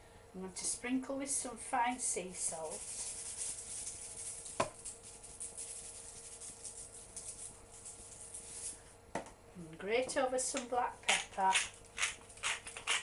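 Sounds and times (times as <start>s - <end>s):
salt shaker rattling: 2.5s - 8.8s.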